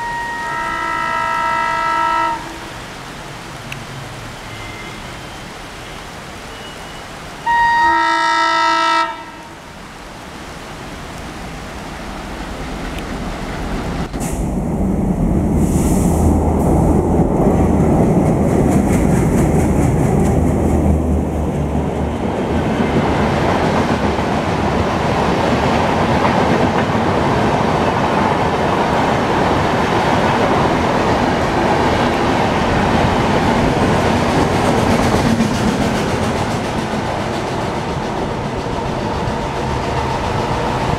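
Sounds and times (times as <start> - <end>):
locomotive air horn: 0.0 - 2.7, 7.4 - 9.6
train wheels clattering on track: 12.7 - 14.6, 15.5 - 40.9.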